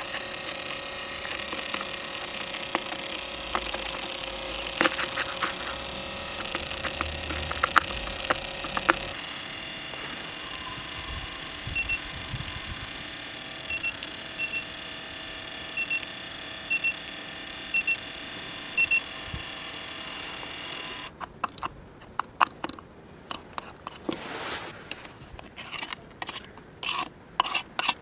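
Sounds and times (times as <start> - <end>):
metal scraper scraping ice cream: 0.0 - 11.7, 20.3 - 28.0
freezer hum: 0.0 - 28.0.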